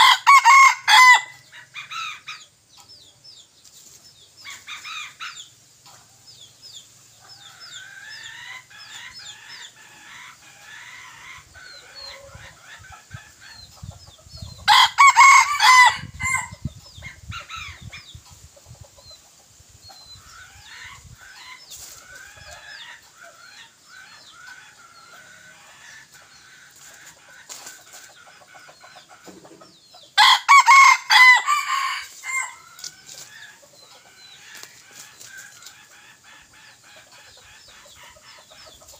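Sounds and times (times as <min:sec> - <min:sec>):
rooster crowing: 0:00.0 - 0:01.4, 0:14.7 - 0:16.5, 0:30.2 - 0:32.6
soft chirping calls: 0:32.1 - 0:38.9.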